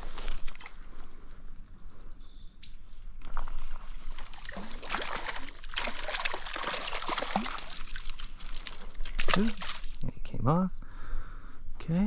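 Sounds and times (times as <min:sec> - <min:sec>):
fish splashing in water: 0:03.4 - 0:10.0.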